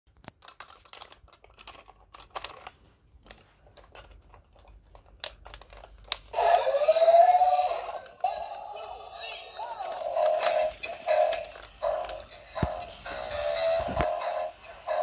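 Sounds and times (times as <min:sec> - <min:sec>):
plastic clicks and rattles: 0:00.1 - 0:06.3
toy electronic wavering sound: 0:06.4 - 0:15.0.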